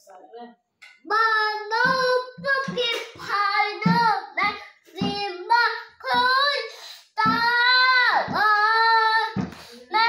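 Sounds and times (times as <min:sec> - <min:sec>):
child singing unaccompanied: 0:01.0 - 0:10.0
breaths between phrases: 0:09.5 - 0:09.9.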